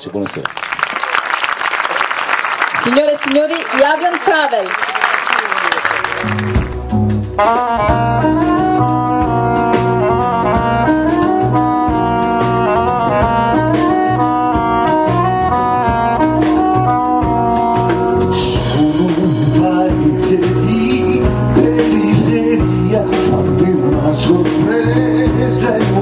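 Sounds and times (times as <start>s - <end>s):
live band playing: 0.8s - 26.0s
saxophone melody: 5.9s - 26.0s.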